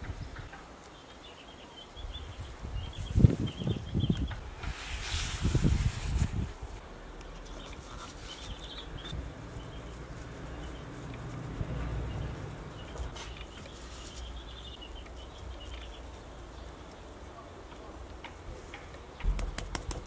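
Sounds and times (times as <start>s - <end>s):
birds chirping: 0.0s - 4.7s, 6.8s - 20.0s
steady low rumble: 8.8s - 13.4s.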